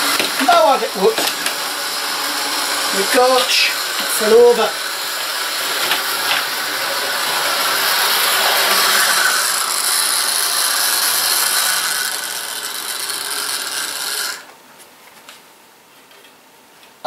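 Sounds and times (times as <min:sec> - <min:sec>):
model train motor whirring: 0:00.0 - 0:14.5.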